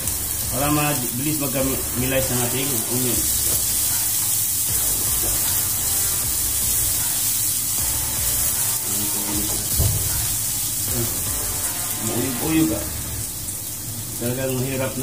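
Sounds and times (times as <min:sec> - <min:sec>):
garlic and onion sizzling: 0:00.0 - 0:15.0.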